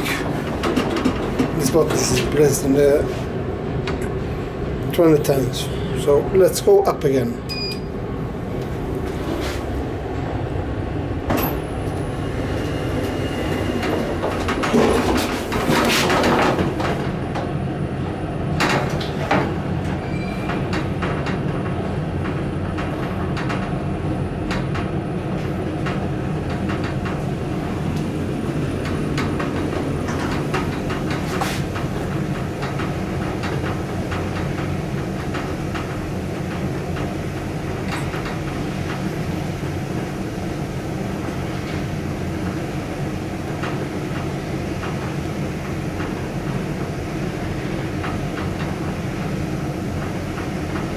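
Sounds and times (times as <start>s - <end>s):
elevator doors knocking: 0.0s - 3.0s, 10.1s - 17.5s, 18.5s - 40.2s
elevator running: 0.0s - 50.9s.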